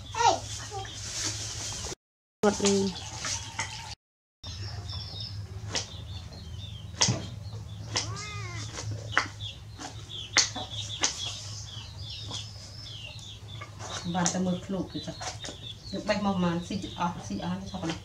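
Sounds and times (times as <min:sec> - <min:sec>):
faint high chirping: 0:07.8 - 0:08.8
animal call: 0:07.9 - 0:08.9.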